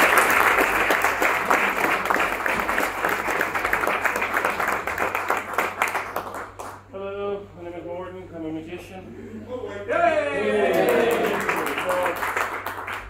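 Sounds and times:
audience applauding: 0:00.0 - 0:06.9, 0:10.7 - 0:13.0.

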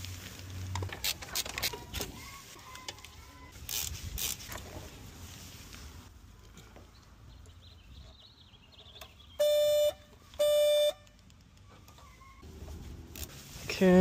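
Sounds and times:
car alarm beeps: 0:09.4 - 0:11.0.

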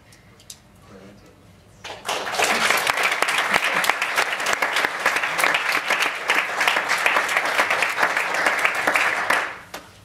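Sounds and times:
audience applauding: 0:01.8 - 0:09.7.

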